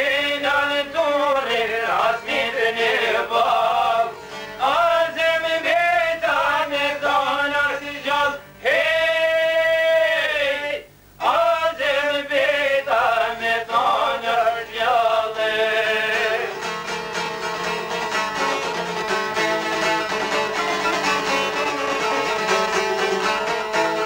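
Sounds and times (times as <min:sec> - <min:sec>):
man singing folk song: 0:00.0 - 0:18.8
plucked long-necked lutes: 0:16.2 - 0:24.0.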